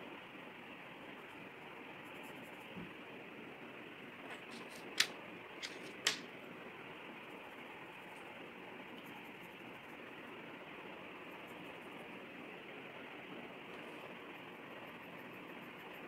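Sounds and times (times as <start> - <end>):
sharp clicks: 4.6 - 6.2.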